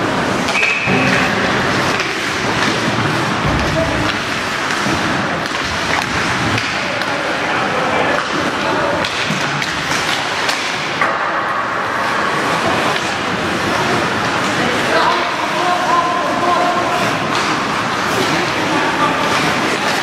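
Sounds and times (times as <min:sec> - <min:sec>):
arena crowd hubbub: 0:00.0 - 0:20.0
skates scraping ice: 0:00.2 - 0:07.3, 0:12.4 - 0:20.0
sticks and puck clacking: 0:00.3 - 0:07.4, 0:08.0 - 0:11.5, 0:12.5 - 0:20.0.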